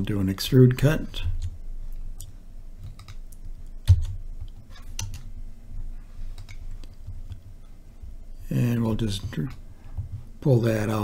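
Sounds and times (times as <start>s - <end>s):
computer mouse clicks: 1.2s - 5.3s, 6.4s - 7.4s.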